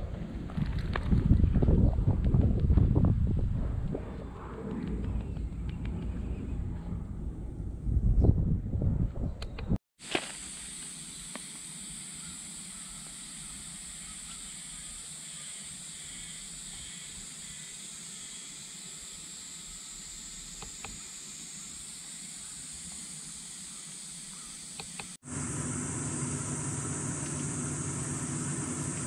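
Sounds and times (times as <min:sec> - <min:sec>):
high-pitched outdoor hiss: 0:10.0 - 0:29.0.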